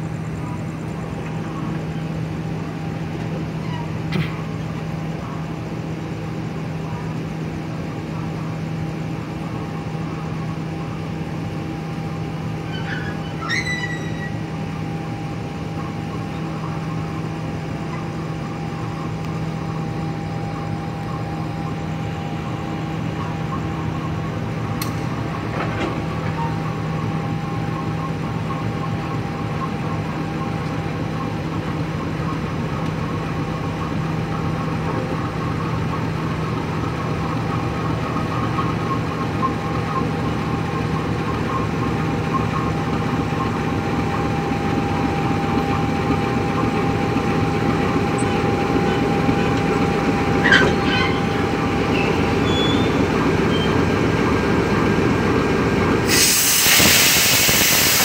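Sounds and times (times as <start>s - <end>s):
diesel locomotive hum: 0.0s - 58.0s
train wheels rolling: 9.5s - 58.0s
brief high squeal: 12.6s - 14.5s, 50.4s - 53.8s.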